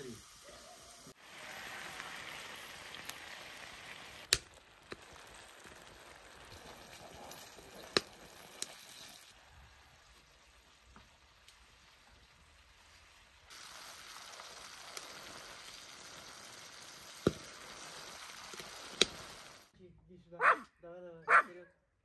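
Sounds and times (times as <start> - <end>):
food sizzling in a pan: 0.0 - 19.7.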